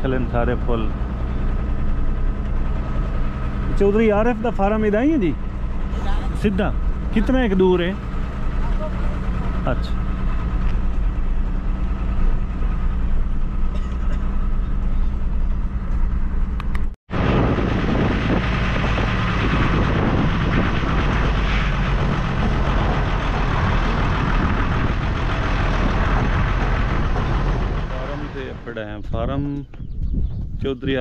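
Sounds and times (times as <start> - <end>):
truck engine running: 0.0 - 31.0
rough rushing noise: 0.9 - 29.6.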